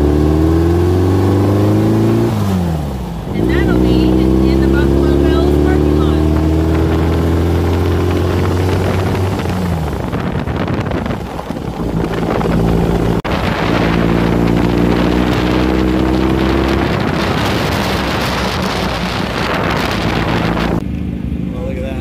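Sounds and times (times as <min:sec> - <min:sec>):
car engine accelerating: 0:00.0 - 0:22.0
road and wind noise: 0:00.0 - 0:22.0.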